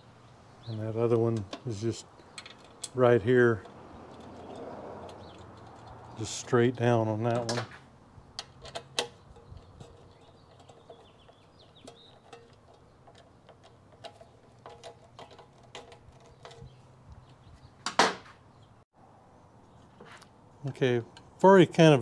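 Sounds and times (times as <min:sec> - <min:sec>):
metal parts clicking and tapping: 0:01.3 - 0:03.0, 0:08.4 - 0:17.4.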